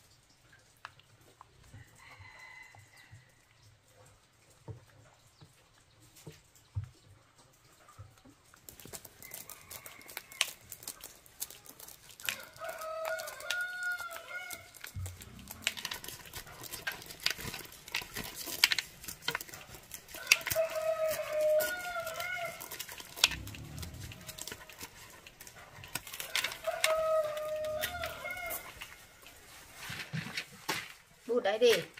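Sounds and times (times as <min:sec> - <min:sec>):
corn kernels clicking and rattling: 0:07.3 - 0:31.9
rooster crowing: 0:12.3 - 0:15.7, 0:20.2 - 0:24.7, 0:26.2 - 0:28.7.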